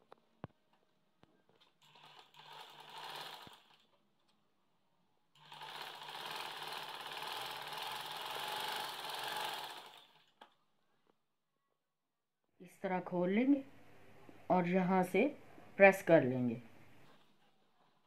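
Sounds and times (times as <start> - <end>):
sewing machine stitching: 1.6 - 3.9, 5.4 - 10.4.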